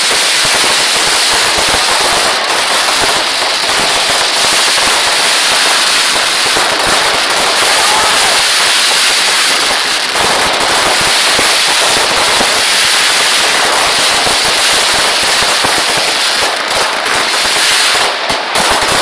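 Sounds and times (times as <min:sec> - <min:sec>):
fireworks crackling and popping: 0:00.0 - 0:19.0.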